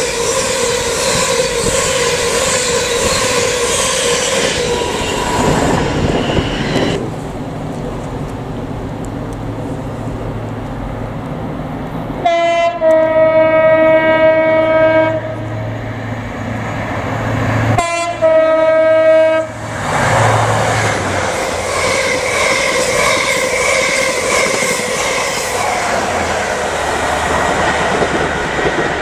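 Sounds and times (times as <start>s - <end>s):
train two-tone horn: 0.0s - 7.0s, 12.2s - 15.6s, 17.8s - 19.8s
train wheels on rails: 0.0s - 29.0s.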